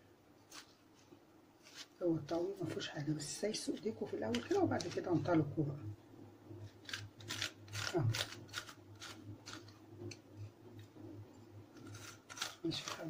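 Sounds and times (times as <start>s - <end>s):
steady low hum: 0.0s - 13.0s
vegetable corer scraping: 6.7s - 9.8s, 11.7s - 13.0s.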